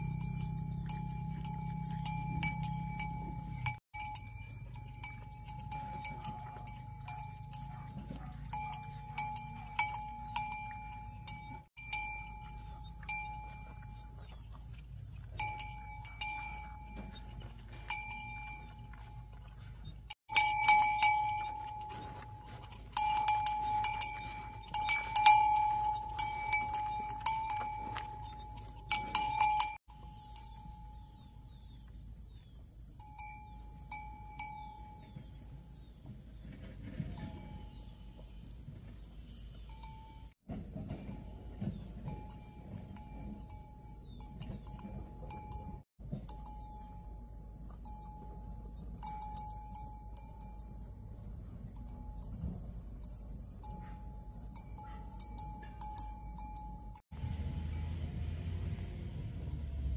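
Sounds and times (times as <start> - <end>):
cowbell clanking: 0.0 - 31.7, 33.0 - 35.4, 36.8 - 38.4, 39.5 - 58.3.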